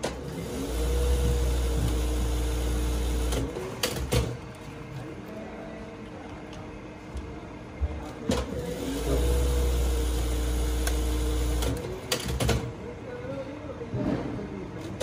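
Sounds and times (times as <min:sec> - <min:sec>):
sewing machine running: 0:00.0 - 0:04.3, 0:08.6 - 0:12.6.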